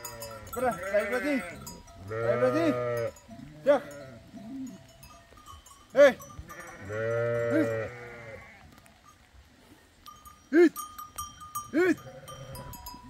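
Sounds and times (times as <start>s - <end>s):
sheep bleating: 0.0s - 4.8s, 6.0s - 8.7s, 11.7s - 12.8s.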